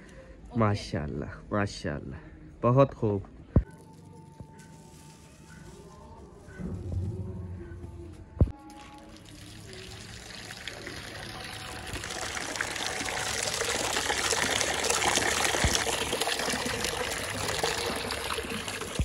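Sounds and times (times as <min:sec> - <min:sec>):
water jet splashing into bowl: 0:08.8 - 0:19.0.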